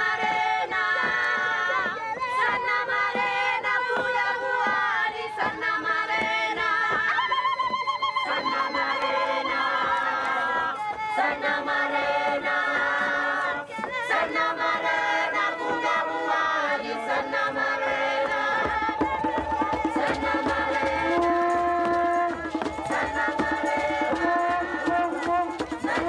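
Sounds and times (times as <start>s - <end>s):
choir singing: 0.0s - 26.0s
steady drum beat: 10.4s - 26.0s.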